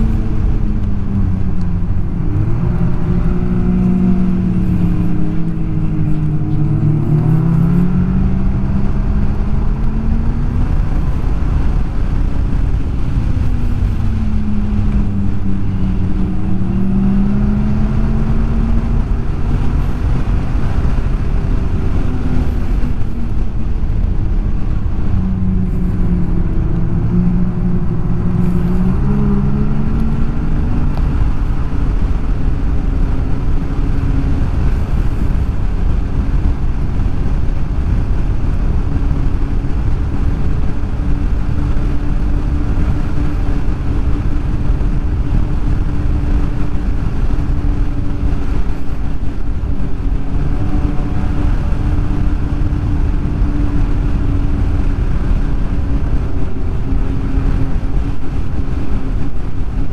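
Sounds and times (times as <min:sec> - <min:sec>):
snowmobile engine revving: 0:00.0 - 0:35.6.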